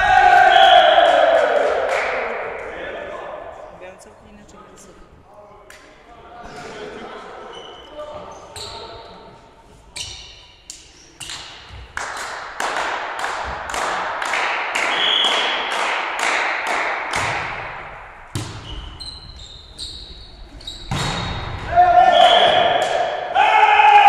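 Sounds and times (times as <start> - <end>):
volleyball being struck: 14.8 - 18.7, 20.9 - 21.7.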